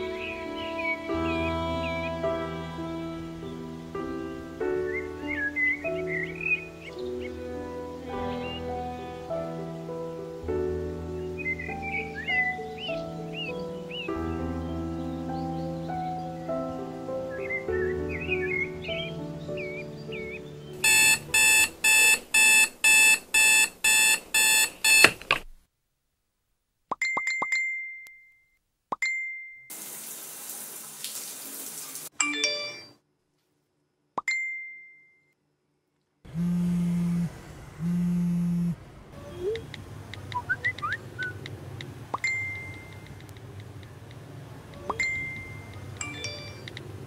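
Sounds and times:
soft music: 0:00.0 - 0:23.1, 0:32.1 - 0:33.0
short rising chirps: 0:20.8 - 0:25.1
alarm clock beeping: 0:20.8 - 0:25.2
low steady buzzes: 0:36.3 - 0:39.1.

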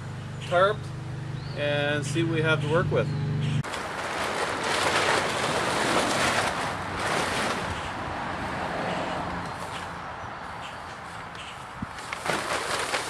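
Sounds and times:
plastic tarp rustling: 0:03.6 - 0:07.9, 0:12.0 - 0:13.0.

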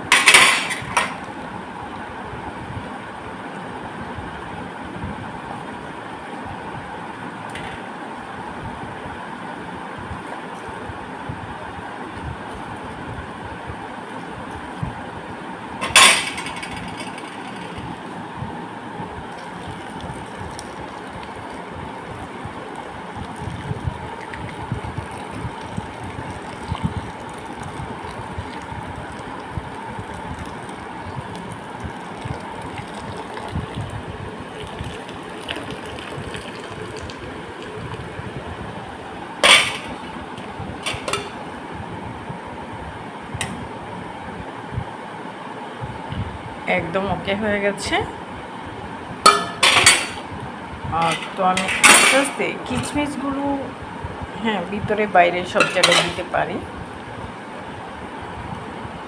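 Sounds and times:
milk pouring: 0:19.3 - 0:38.2
metal cookware clanking on bowl: 0:49.3 - 0:50.2, 0:51.0 - 0:52.4, 0:55.6 - 0:56.2.

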